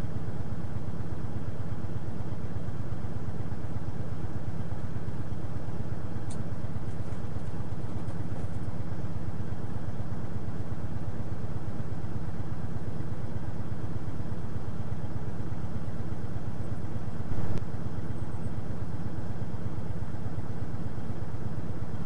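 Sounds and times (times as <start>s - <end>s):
diesel engine idling: 0.0s - 22.0s
faint click: 6.2s - 7.5s.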